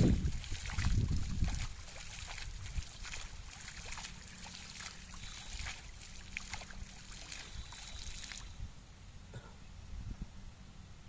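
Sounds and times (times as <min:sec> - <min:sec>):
hand splashing through water: 0:00.0 - 0:08.5.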